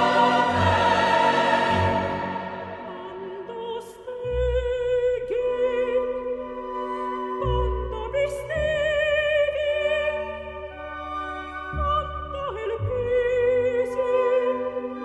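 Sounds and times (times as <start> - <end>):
operatic singing voice: 0.0 - 6.5.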